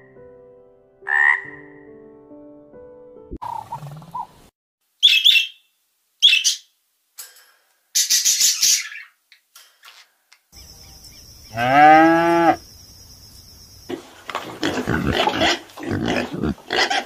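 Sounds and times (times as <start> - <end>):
bird calling harshly: 5.0 - 6.8.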